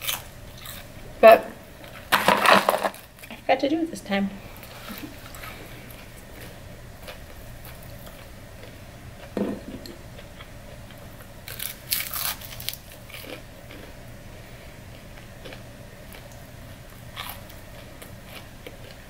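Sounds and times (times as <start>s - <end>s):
crunching fried chicken: 10.9s - 14.0s, 17.0s - 19.0s.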